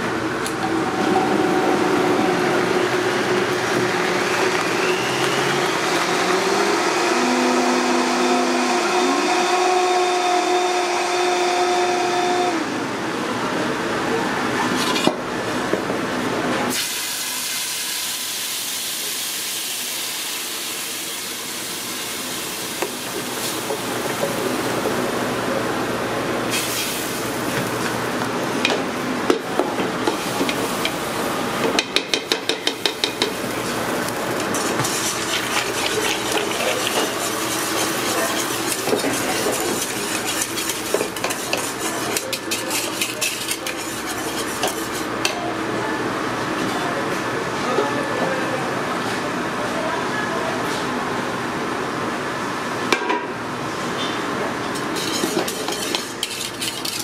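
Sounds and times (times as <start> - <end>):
utensils scraping and tapping pot: 31.7 - 33.4, 34.4 - 45.4, 54.7 - 57.0.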